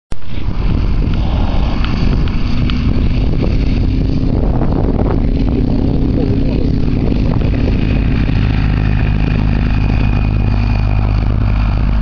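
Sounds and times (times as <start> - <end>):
distant light aircraft engine: 0.1 - 12.0
wind buffeting microphone: 0.1 - 12.0.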